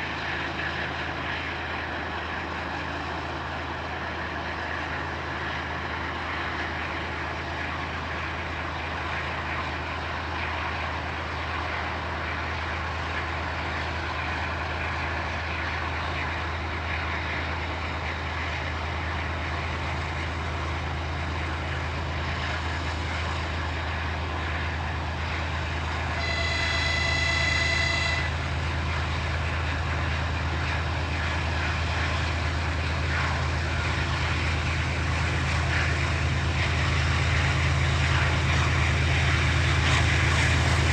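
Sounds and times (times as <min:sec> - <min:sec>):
diesel locomotive engine running: 0:00.0 - 0:40.9
locomotive horn blast: 0:26.1 - 0:28.5.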